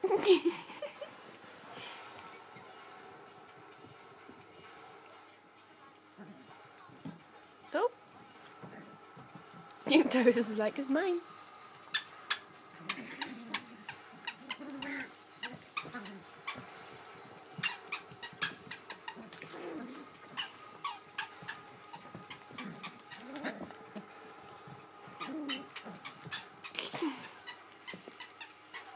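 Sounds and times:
puppies growling and yipping: 11.8 - 28.9.

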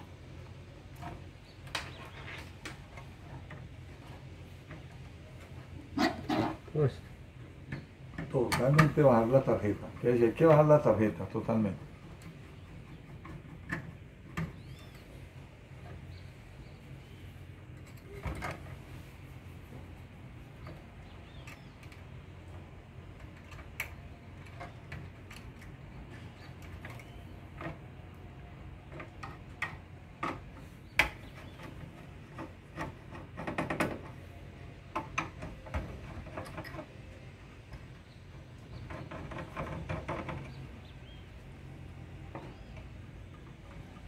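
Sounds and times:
rubbing and scraping: 1.0 - 7.0
clicks and knocks of metal parts: 7.4 - 15.1, 17.6 - 18.9, 19.8 - 44.0.

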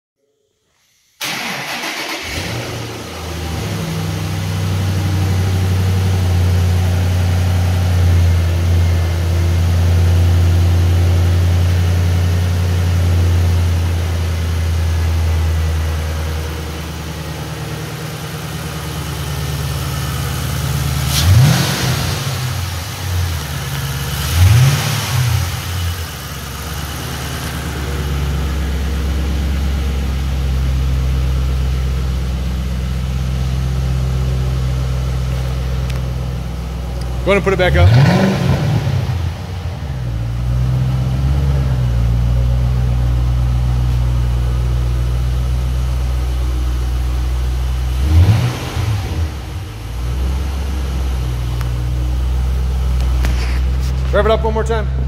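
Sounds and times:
engine revving: 1.2 - 12.5, 20.0 - 29.9, 37.0 - 42.3, 47.7 - 52.0
car engine starting and idling: 1.2 - 55.0.

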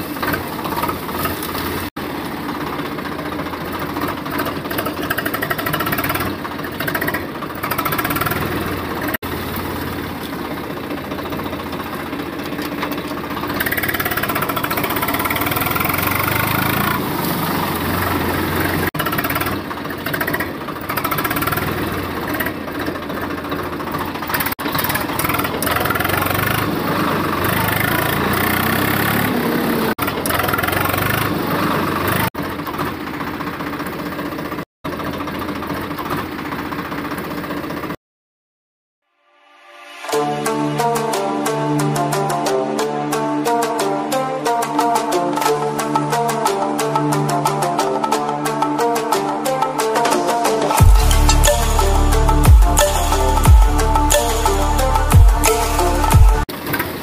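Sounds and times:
tractor engine knocking: 0.1 - 29.2.

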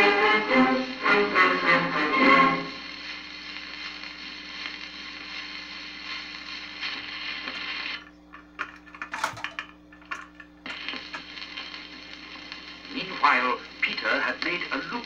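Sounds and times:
record surface hiss and crackle: 0.0 - 15.0
record changer mechanism clatter: 7.5 - 11.2.

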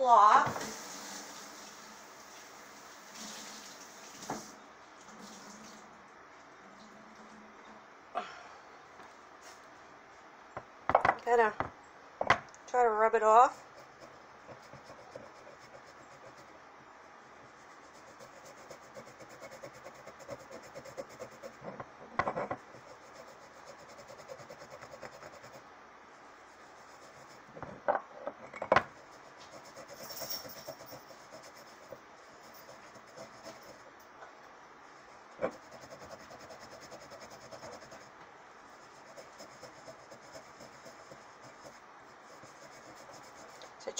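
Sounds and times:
cloth scrubbing a glass jar: 28.9 - 33.9, 38.7 - 43.6.

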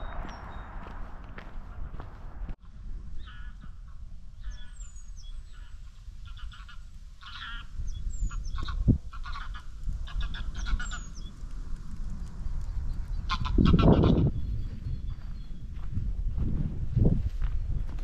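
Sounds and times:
geese honking: 3.2 - 4.8, 5.4 - 11.2, 13.3 - 14.3.

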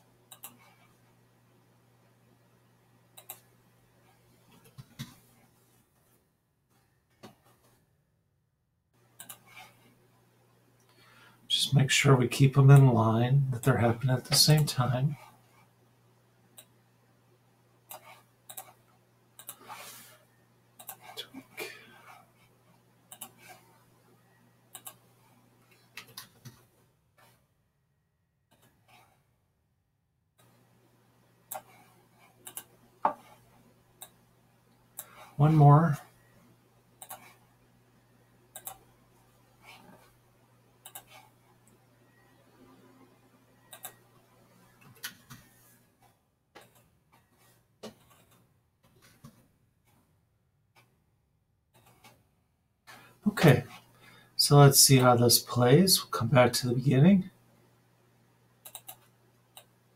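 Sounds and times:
computer mouse clicks: 0.3 - 0.9, 3.2 - 3.5, 9.2 - 9.8, 17.9 - 19.8, 20.8 - 21.2, 23.1 - 23.6, 24.7 - 25.0, 25.7 - 27.4, 31.5 - 33.4, 34.0 - 34.2, 37.0 - 37.4, 38.5 - 38.9, 40.8 - 41.8, 43.7 - 45.6, 46.6 - 47.2, 47.8 - 48.4, 51.7 - 52.2, 58.6 - 59.7
low steady hum: 9.0 - 27.5.

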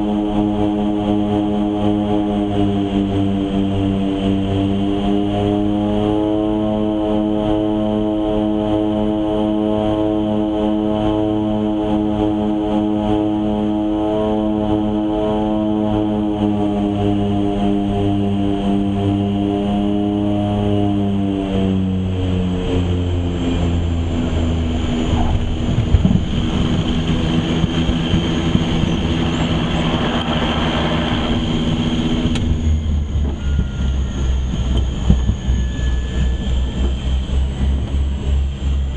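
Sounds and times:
propeller roar in reverse: 0.0 - 38.9
turboprop engines droning: 0.0 - 38.9
low uneven rumble: 23.1 - 38.9.

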